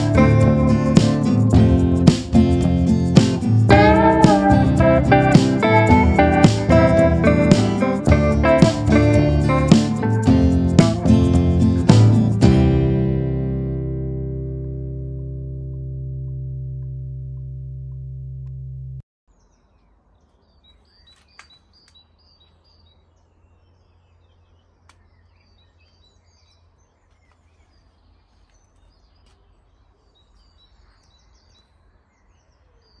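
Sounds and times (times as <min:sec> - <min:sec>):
background music chord: 0:00.0 - 0:19.0
small birds chirping: 0:19.3 - 0:33.0.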